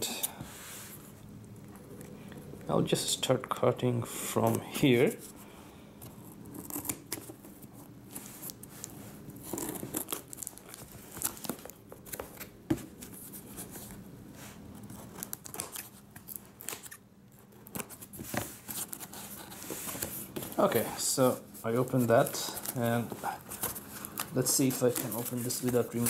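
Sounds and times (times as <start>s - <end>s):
tape and cardboard rustling: 6.0s - 26.0s.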